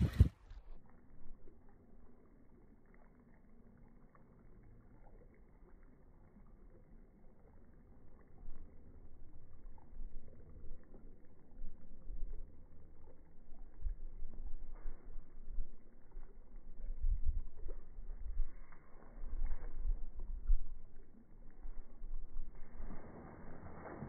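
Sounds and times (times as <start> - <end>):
wind buffeting microphone: 0.0 - 0.4, 13.7 - 21.0.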